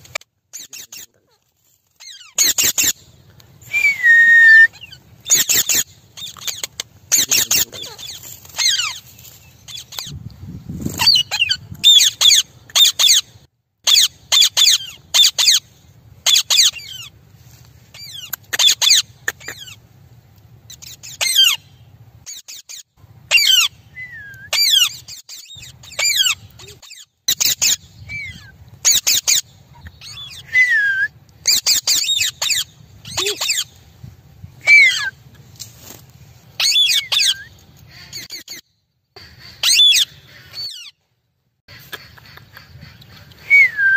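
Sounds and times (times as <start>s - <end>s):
parakeets squawking: 4.8s - 9.0s, 11.0s - 13.2s, 18.0s - 19.8s, 24.5s - 30.5s, 31.4s - 33.7s.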